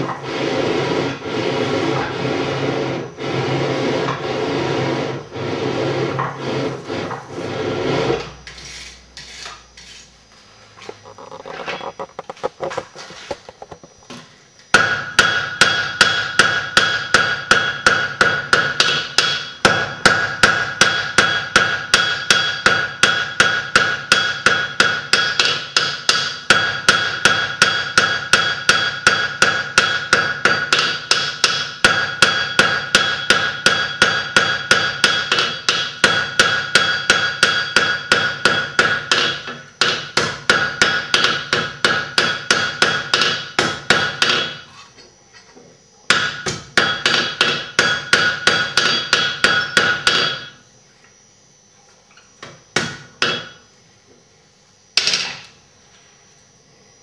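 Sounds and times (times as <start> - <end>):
hammer striking hot iron on anvil: 14.7 - 44.7, 46.1 - 50.6, 52.7 - 53.7, 55.0 - 55.5.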